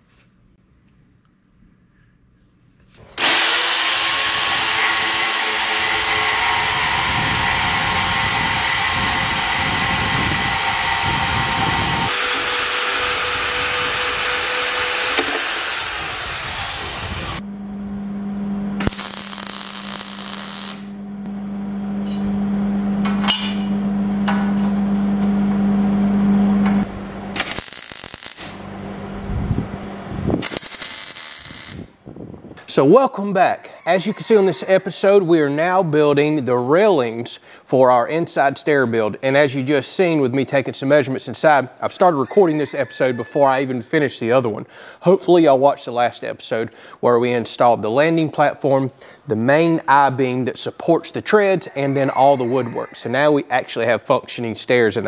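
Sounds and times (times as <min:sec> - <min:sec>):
band saw cutting steel: 0:03.0 - 0:17.4, 0:18.8 - 0:20.9, 0:27.3 - 0:28.6, 0:30.4 - 0:31.9
welding bursts: 0:03.1 - 0:17.4, 0:18.8 - 0:21.0, 0:27.3 - 0:28.7, 0:30.4 - 0:32.0.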